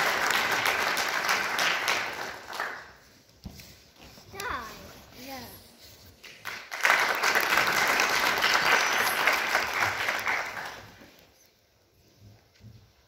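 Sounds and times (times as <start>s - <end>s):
audience applauding: 0.0s - 3.0s, 6.3s - 11.3s.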